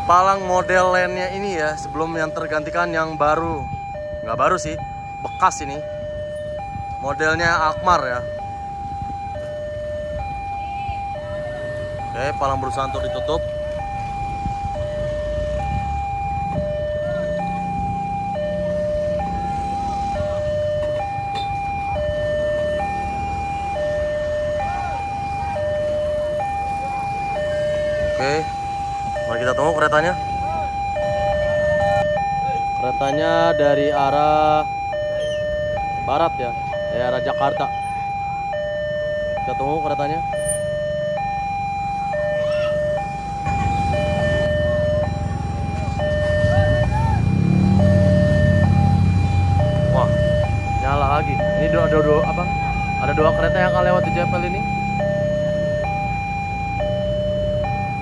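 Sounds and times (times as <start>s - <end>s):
level crossing two-tone alarm: 0.0s - 58.0s
motorcycle engines running: 0.0s - 58.0s.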